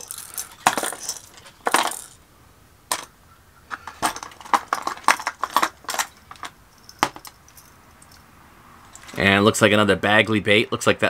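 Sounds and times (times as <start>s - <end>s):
fishing lures clinking together: 0.0s - 2.2s.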